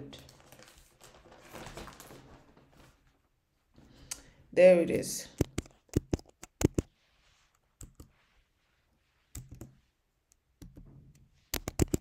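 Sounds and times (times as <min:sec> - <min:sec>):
computer keyboard keystrokes: 0:05.4 - 0:06.9, 0:11.5 - 0:12.0.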